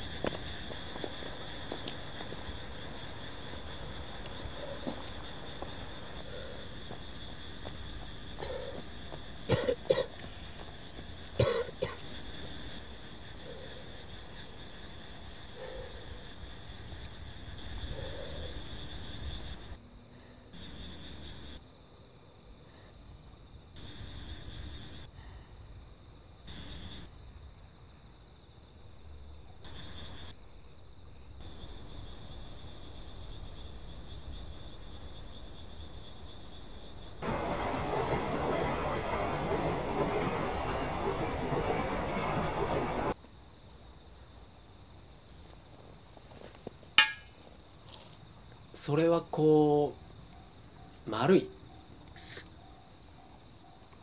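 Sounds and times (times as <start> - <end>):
person coughing: 9.5 - 10.2, 11.4 - 12.0
loud rushing noise: 37.2 - 43.2.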